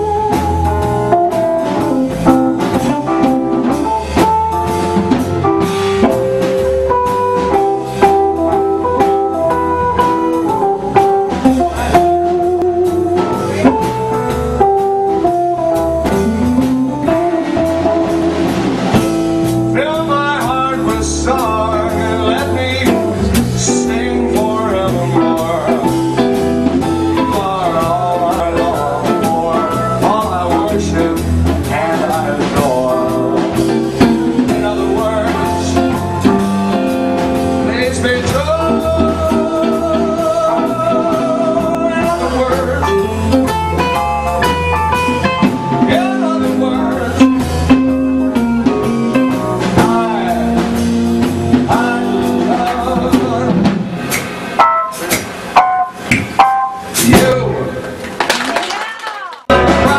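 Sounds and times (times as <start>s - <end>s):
drum kit: 0.0s - 59.9s
electric guitar: 0.0s - 59.9s
man singing: 19.7s - 26.4s, 27.0s - 36.8s, 37.6s - 44.0s, 45.7s - 47.7s, 49.2s - 53.9s, 57.0s - 57.8s, 59.5s - 59.9s.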